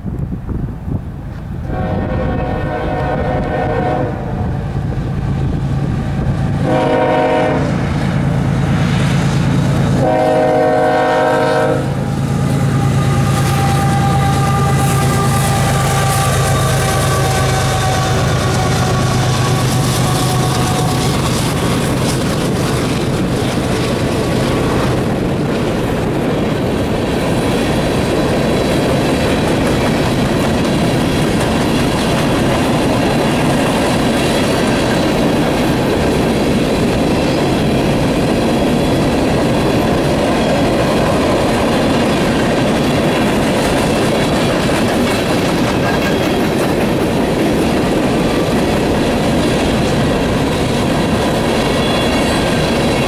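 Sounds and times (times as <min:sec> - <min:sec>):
diesel locomotive engine drone: 0:00.0 - 0:53.0
train wheels rumbling on rail: 0:00.0 - 0:53.0
rhythmic clickety-clack: 0:13.4 - 0:53.0.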